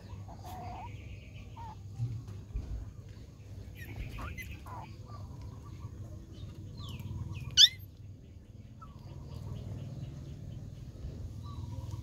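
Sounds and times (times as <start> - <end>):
puppy whining: 3.8 - 4.9, 7.4 - 8.0
puppy yelping: 3.8 - 4.9, 7.4 - 8.0.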